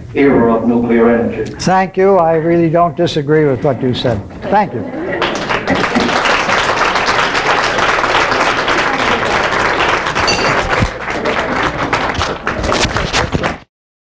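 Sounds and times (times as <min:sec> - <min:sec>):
audience applause: 0:05.0 - 0:13.7.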